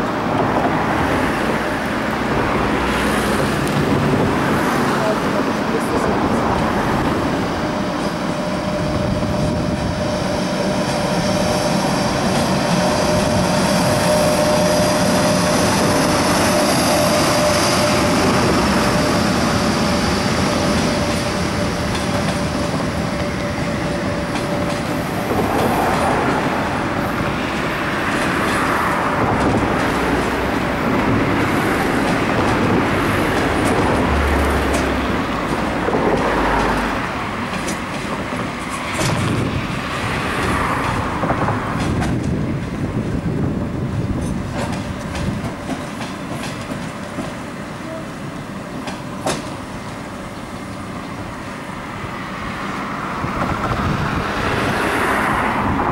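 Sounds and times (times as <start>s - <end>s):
train wheel squeal: 7.5s - 25.0s.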